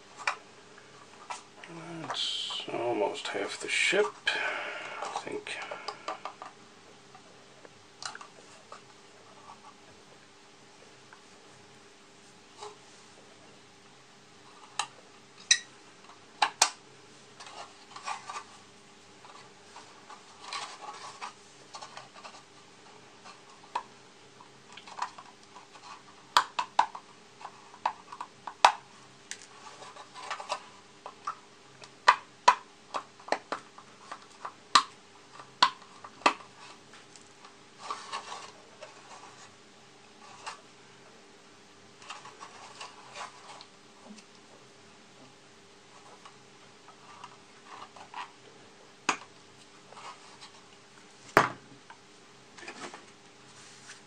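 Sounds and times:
faint steady hum: 0.0 - 54.0
knife scraping plastic: 19.3 - 22.5, 29.3 - 30.8, 37.8 - 39.6, 42.0 - 44.2.

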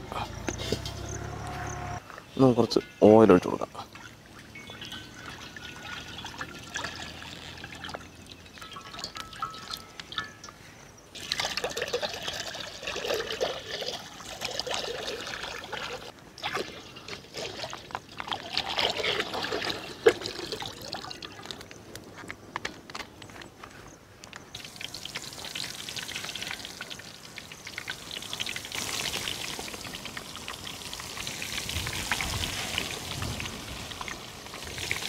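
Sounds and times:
oil pouring into metal pan: 11.2 - 21.0.

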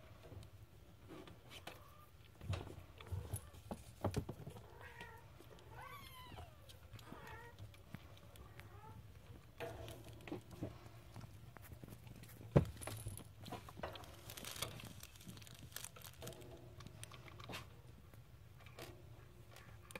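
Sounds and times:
kittens scrabbling on blanket: 6.6 - 17.7.

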